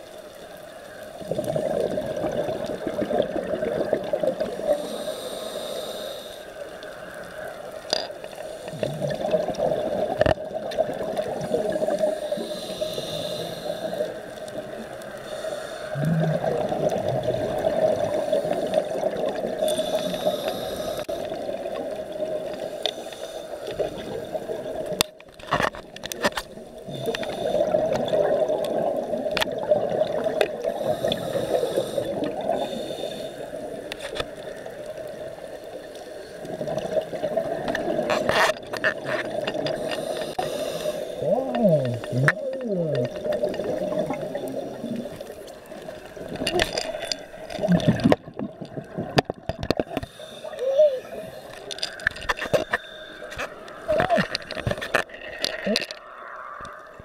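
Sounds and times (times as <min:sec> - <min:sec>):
underwater regulator bubbles: 0:01.2 - 0:06.1, 0:08.7 - 0:22.7, 0:36.4 - 0:57.0.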